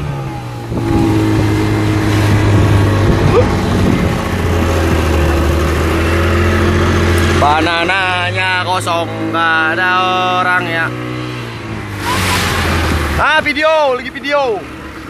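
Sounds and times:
speedboat engine running: 0.0s - 15.0s
wind rushing: 0.6s - 7.1s
water rushing: 10.3s - 15.0s.

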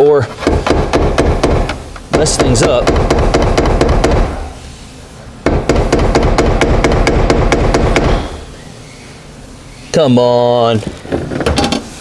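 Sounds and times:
tool strikes on metal tank: 0.4s - 4.4s, 5.4s - 8.4s.

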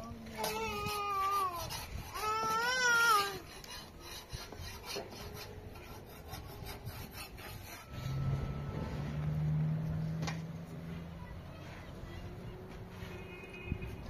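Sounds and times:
stick scraping metal griddle: 0.0s - 9.3s.

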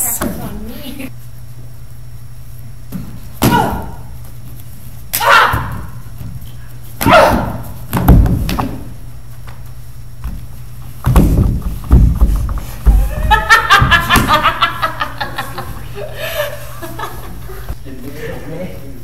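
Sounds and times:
people shouting and yelping: 5.2s - 6.0s
dull thuds of bodies: 7.0s - 8.9s, 10.2s - 14.4s
body falling onto stage floor: 11.0s - 14.4s.

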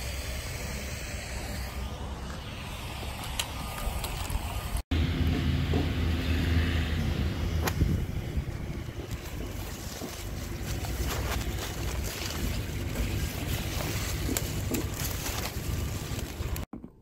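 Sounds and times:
wind buffeting microphone: 7.5s - 11.5s.

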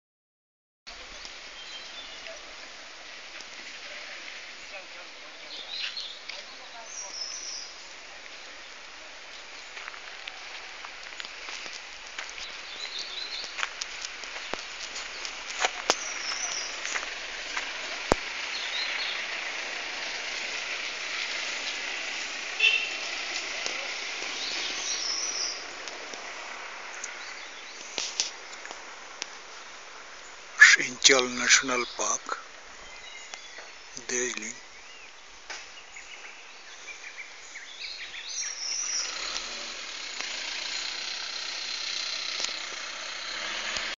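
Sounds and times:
small birds chirping: 0.9s - 44.0s
steady hiss: 0.9s - 44.0s
high-pitched hiss: 38.2s - 44.0s.

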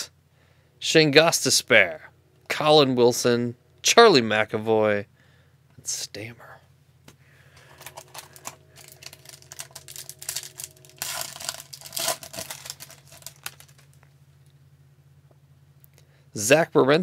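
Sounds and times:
foil wrapper crinkling and tearing: 7.8s - 14.0s.

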